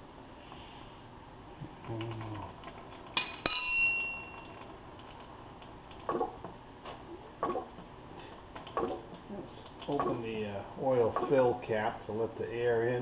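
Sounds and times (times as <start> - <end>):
wrench clinking on metal: 3.2 - 4.6.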